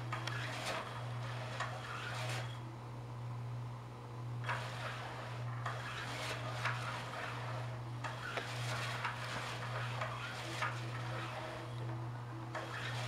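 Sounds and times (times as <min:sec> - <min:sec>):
scratchy rustles and clicks: 0:00.1 - 0:02.6, 0:04.4 - 0:11.8.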